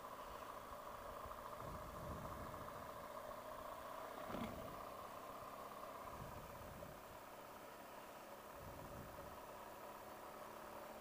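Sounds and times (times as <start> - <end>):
faint motorcycle engine running: 0.0 - 11.0
brief thump: 4.3 - 4.7.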